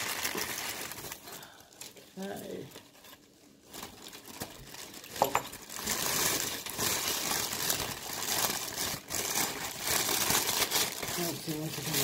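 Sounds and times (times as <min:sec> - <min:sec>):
packing paper rustling and crinkling: 0:00.0 - 0:12.0.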